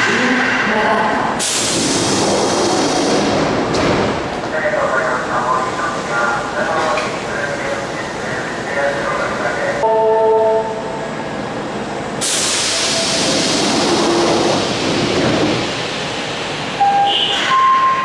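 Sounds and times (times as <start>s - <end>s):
subway train rumble: 0.0s - 18.0s
hiss of air from train: 1.4s - 3.7s, 12.2s - 16.7s.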